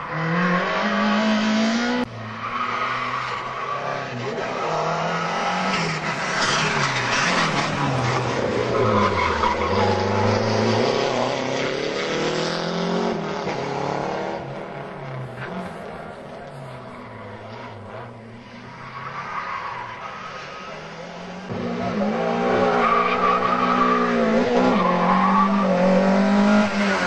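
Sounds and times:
rally car engine revving: 19.8 - 27.0.

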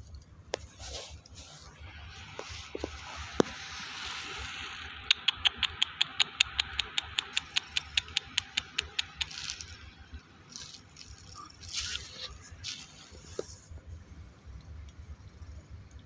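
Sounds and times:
rapid sharp clicks: 4.8 - 9.8.

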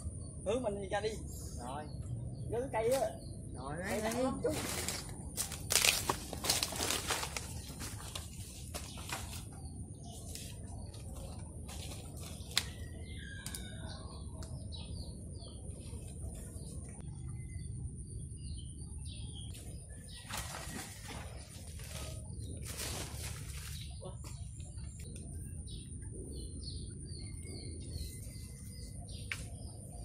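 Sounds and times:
steady low rumble: 0.0 - 13.3, 13.9 - 20.2
birds chirping: 0.0 - 30.0.

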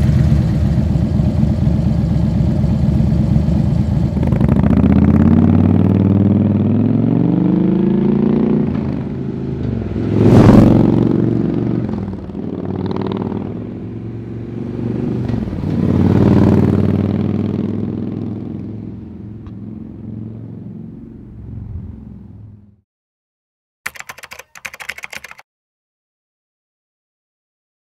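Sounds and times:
motorcycle engine accelerating hard: 0.0 - 22.6.

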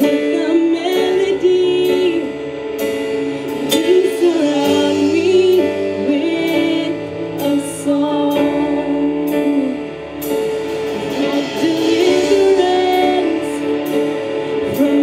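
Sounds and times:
women singing: 3.7 - 9.8, 11.2 - 13.9, 14.6 - 15.0.

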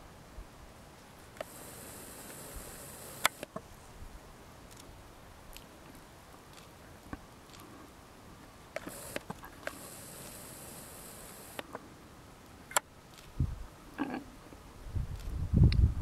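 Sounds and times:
camcorder zoom motor whine: 1.4 - 3.6, 8.8 - 11.7
faint clicks and rustles: 4.6 - 7.9, 8.8 - 13.4.

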